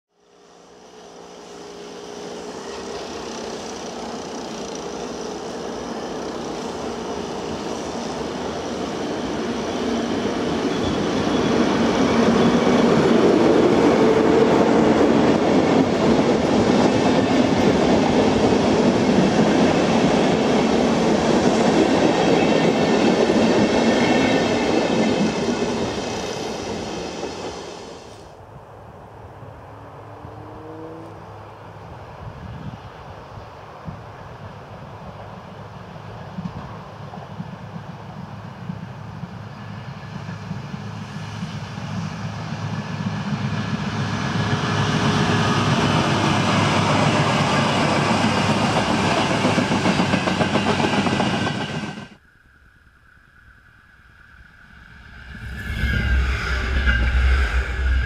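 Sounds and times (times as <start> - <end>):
train wheels rumbling on rail: 0.2 - 28.4, 30.0 - 52.2, 54.7 - 58.0
whining tones: 52.2 - 58.0.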